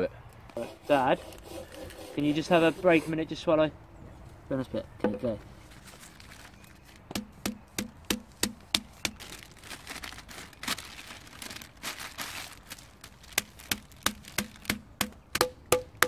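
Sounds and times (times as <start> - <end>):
baking paper crinkling: 5.7 - 7.1, 8.6 - 15.0
wooden mallet pounding meat: 7.1 - 9.2, 13.7 - 16.0.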